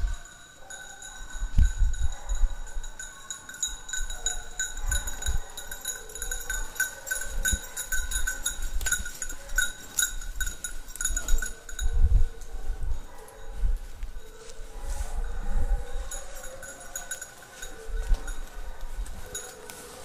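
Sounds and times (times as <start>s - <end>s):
small metal bell ringing: 0.0s - 12.4s, 15.8s - 18.6s
footsteps in dry leaves: 13.5s - 20.0s.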